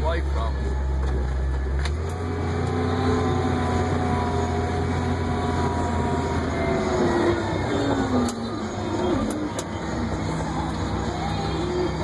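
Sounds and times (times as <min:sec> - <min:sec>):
faint engine whine: 0:00.0 - 0:12.0
heavy machine engine droning: 0:00.0 - 0:12.0.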